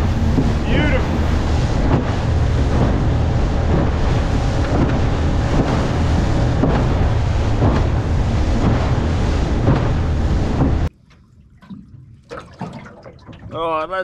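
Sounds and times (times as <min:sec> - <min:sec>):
outboard motor at full throttle: 0:00.0 - 0:10.9
wind buffeting microphone: 0:00.0 - 0:10.9
hull thudding and splashing: 0:00.0 - 0:14.0.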